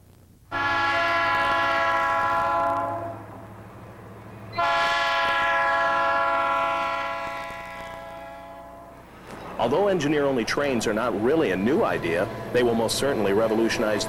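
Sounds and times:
locomotive air horn blasts: 0.5 - 3.4, 4.5 - 9.1.

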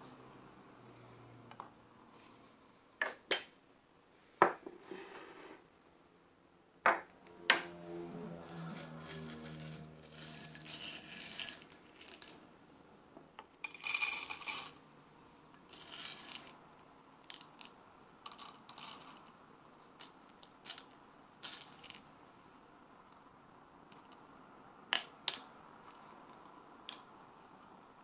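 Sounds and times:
coffee beans rattling: 8.6 - 12.4, 13.6 - 14.8, 15.7 - 16.6, 18.3 - 19.3, 20.0 - 22.0.

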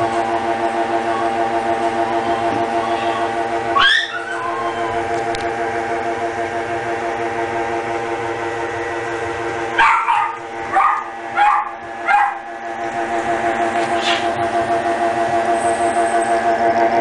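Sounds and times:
puppy yapping: 2.3 - 5.0, 9.8 - 12.4.

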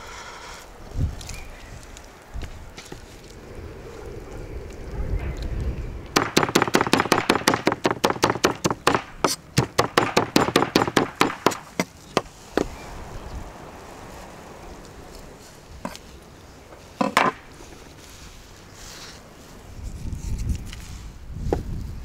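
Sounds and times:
cleaver chopping on wooden board: 6.2 - 12.7.

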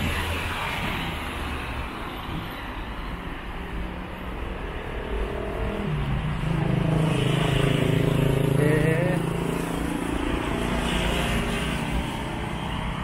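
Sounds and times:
vehicle engines running: 4.4 - 13.0.

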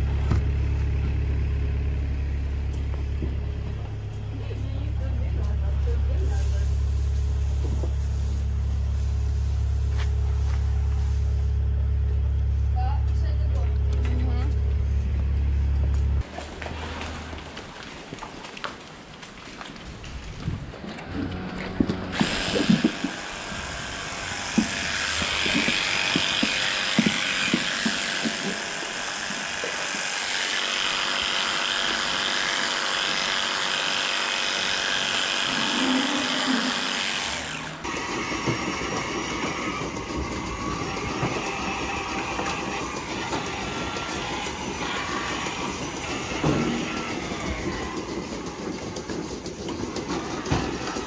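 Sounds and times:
machinery clatter: 21.3 - 30.5, 37.2 - 51.0
electric hair clippers running: 22.2 - 40.0, 40.6 - 47.9.

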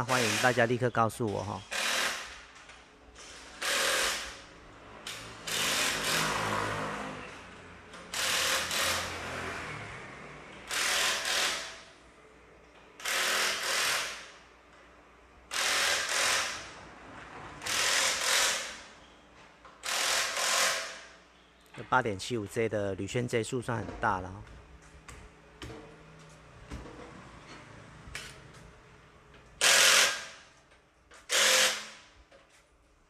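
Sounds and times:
impact wrench hammering: 8.0 - 9.1, 10.7 - 11.9, 13.0 - 14.4, 15.5 - 16.8, 19.8 - 21.1, 29.6 - 30.4.

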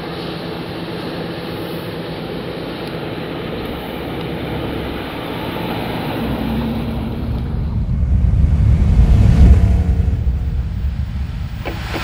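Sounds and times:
car engine running: 0.8 - 12.0
higher steady tone: 6.0 - 11.8
hiss: 9.1 - 12.0.

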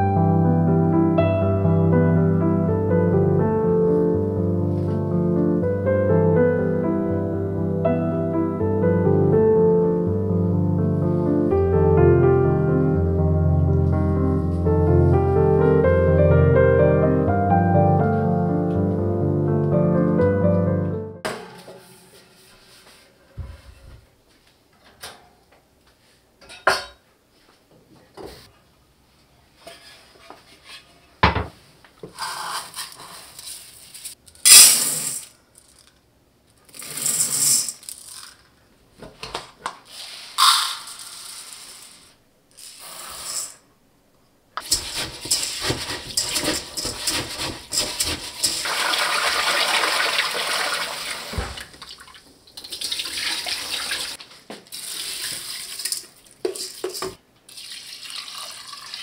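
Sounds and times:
water poured into pot: 46.2 - 59.0
water splashing over rice: 48.6 - 52.1.

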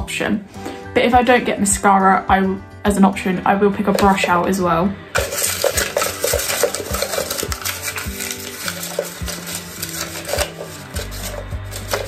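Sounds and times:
soft background music: 0.0 - 12.0
plastic items clattering: 3.9 - 4.4, 5.2 - 12.0.

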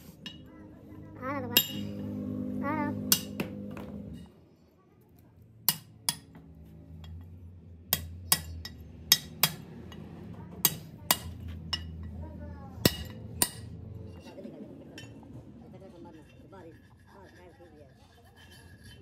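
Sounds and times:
hammer striking chisel on metal: 1.5 - 2.1, 3.0 - 4.0, 5.6 - 7.3, 7.9 - 12.2, 12.8 - 13.8.

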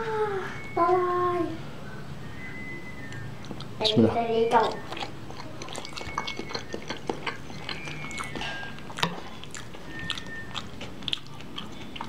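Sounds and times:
person chewing wetly: 2.5 - 12.0.

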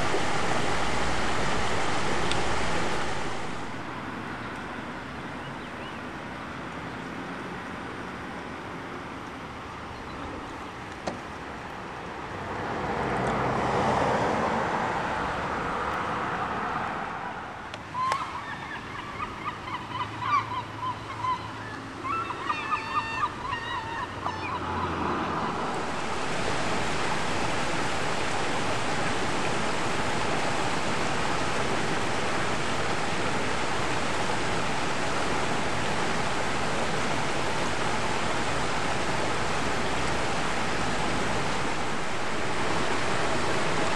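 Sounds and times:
rushing water: 0.0 - 43.9
bird calling: 17.9 - 25.8.

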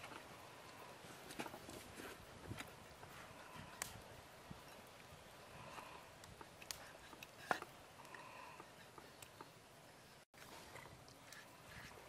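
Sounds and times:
faint background hiss: 0.0 - 12.0
faint ticks: 5.5 - 9.6.

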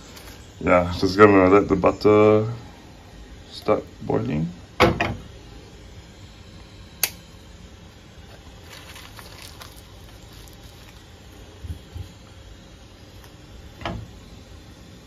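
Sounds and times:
sharp click: 7.0 - 7.2
faint crackles: 8.2 - 12.3.

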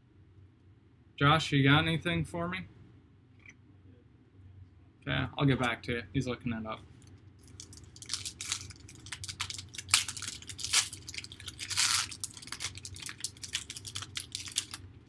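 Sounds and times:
foil wrapper ripping: 7.4 - 14.8
foil wrapper crinkling: 7.4 - 14.9.

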